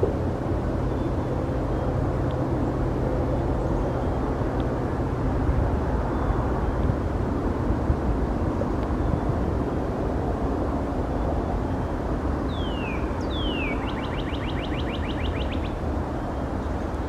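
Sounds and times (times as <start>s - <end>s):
low engine rumble: 0.0s - 17.0s.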